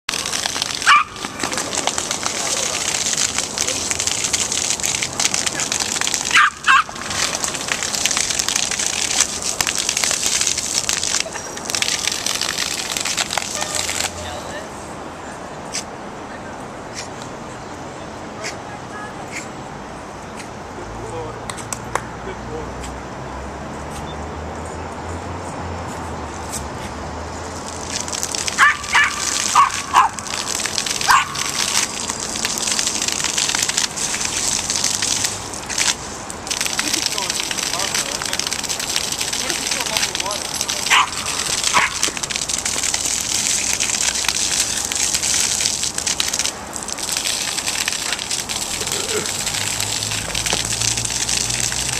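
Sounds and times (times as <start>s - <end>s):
water spraying onto concrete: 0.0s - 16.0s, 25.3s - 51.9s
small dog barking: 6.3s - 6.9s, 28.6s - 30.2s, 31.1s - 31.4s, 40.9s - 42.0s.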